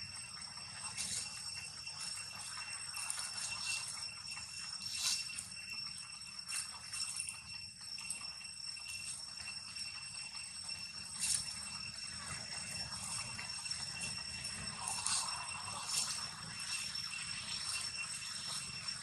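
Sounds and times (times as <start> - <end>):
insect chorus ringing: 0.0 - 19.0
dry leaves rustling: 0.9 - 5.7, 11.1 - 19.0.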